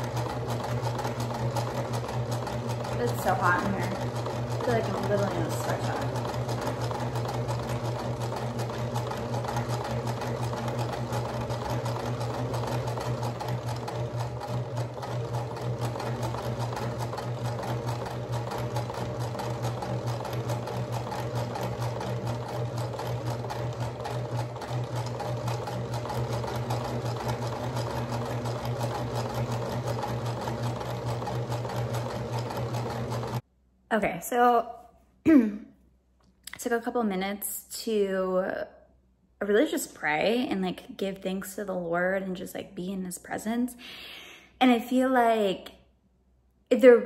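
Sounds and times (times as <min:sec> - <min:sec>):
electric sewing machine running: 0:00.0 - 0:33.4.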